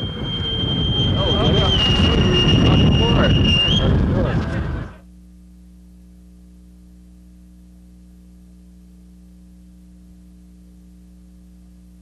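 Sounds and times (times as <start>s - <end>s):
electrical mains hum: 4.8s - 12.0s.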